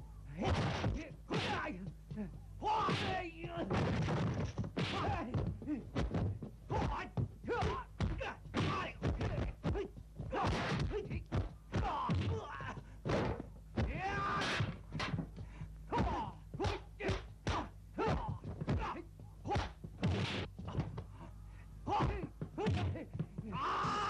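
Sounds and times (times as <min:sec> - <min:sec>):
low hum: 0:00.0 - 0:24.0
fighters shouting and grunting: 0:00.3 - 0:03.8, 0:04.8 - 0:06.1, 0:06.7 - 0:12.9, 0:13.8 - 0:14.8, 0:15.9 - 0:19.8, 0:21.8 - 0:24.0
punch and kick impacts: 0:00.4 - 0:01.8, 0:02.7 - 0:15.3, 0:15.9 - 0:21.0.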